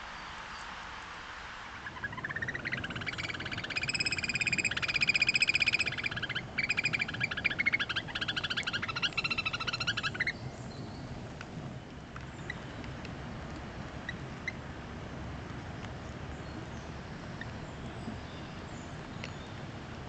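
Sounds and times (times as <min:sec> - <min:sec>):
shrill bird piping: 0:01.8 - 0:10.4.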